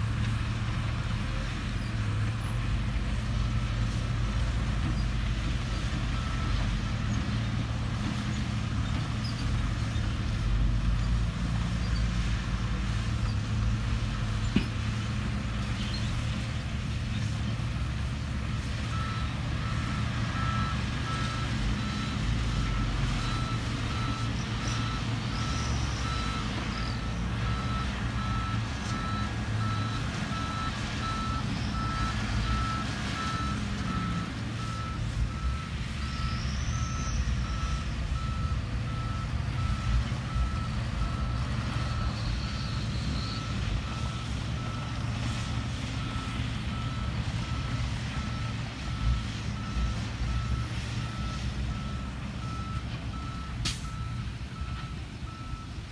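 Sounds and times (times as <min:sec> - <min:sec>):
diesel engines running: 0:00.0 - 0:55.9
reversing alarm beeping: 0:18.9 - 0:44.9.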